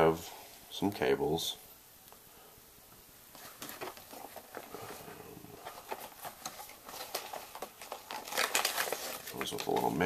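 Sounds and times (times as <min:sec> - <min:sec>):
rustling of packaging: 0:03.3 - 0:10.0.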